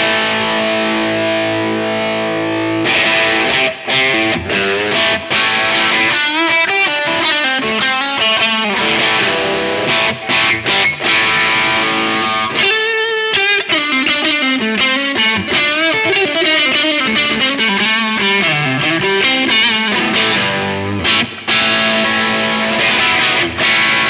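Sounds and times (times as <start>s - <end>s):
distorted electric guitar lead: 0.0s - 24.0s.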